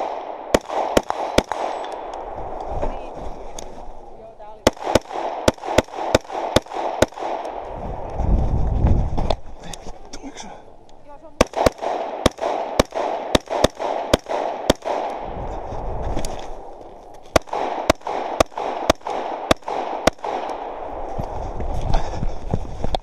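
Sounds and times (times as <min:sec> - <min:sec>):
rifle shots: 0:00.0 - 0:02.3, 0:04.5 - 0:07.7, 0:11.4 - 0:15.3, 0:17.2 - 0:21.1.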